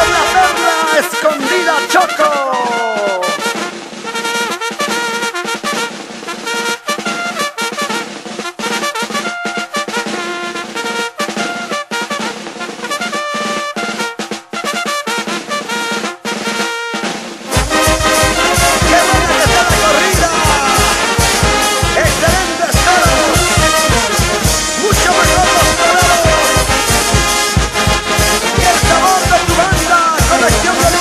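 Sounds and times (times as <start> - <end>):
steady drum beat: 0.0 - 31.0
trumpets and trombones: 0.0 - 31.0.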